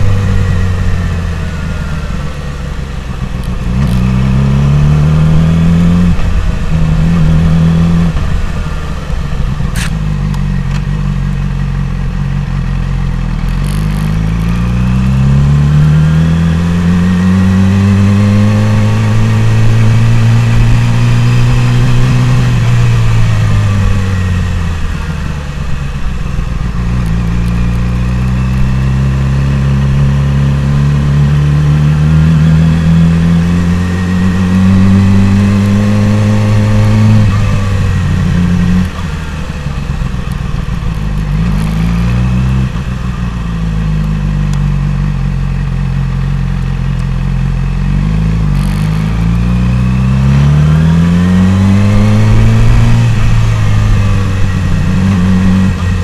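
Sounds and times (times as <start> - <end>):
motorcycle engine accelerating: 0.0 - 56.0
sharp click: 9.7 - 10.9.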